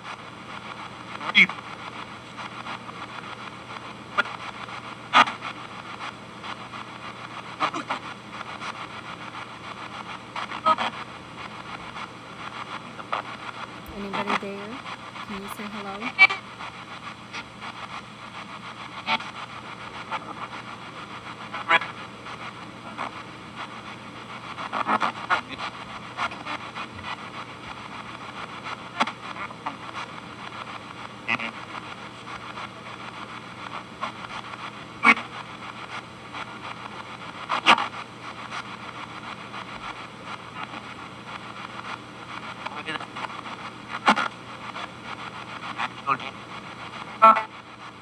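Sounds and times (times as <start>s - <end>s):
radio static: 13.9s - 16.2s, 47.2s - 47.6s
snatches of radio stations: 13.9s - 16.2s.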